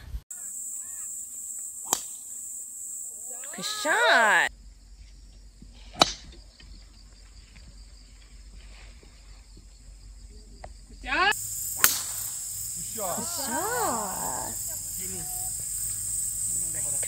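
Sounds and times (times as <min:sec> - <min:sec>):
quiet outdoor ambience: 0:00.0 - 0:17.0
golf club striking ball: 0:06.0 - 0:06.3, 0:11.8 - 0:12.4.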